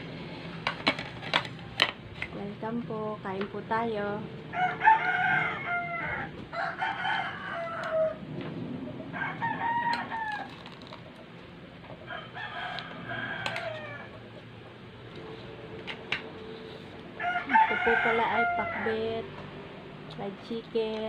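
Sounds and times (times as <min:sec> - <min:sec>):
rooster crowing: 0:04.5 - 0:08.3, 0:09.0 - 0:10.6, 0:12.0 - 0:14.3, 0:17.2 - 0:19.2.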